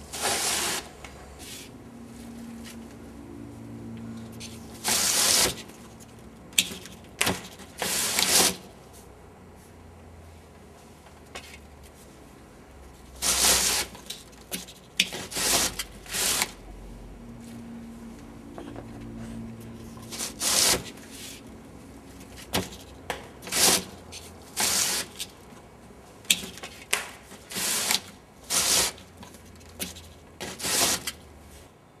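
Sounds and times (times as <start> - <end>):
short scraping and rubbing: 0.1 - 1.7.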